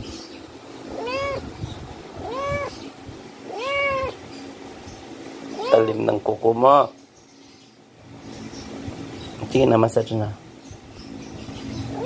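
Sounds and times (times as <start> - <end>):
kitten meowing: 0.9 - 1.5, 2.2 - 2.8, 3.5 - 4.2, 5.5 - 6.0.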